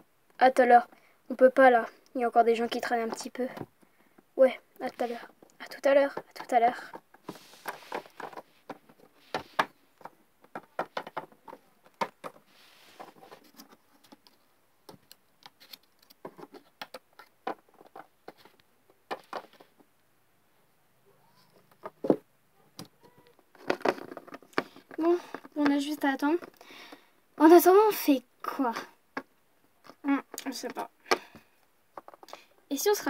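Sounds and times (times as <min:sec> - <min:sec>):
plastic figurines tapping on wood: 0:08.2 - 0:12.4.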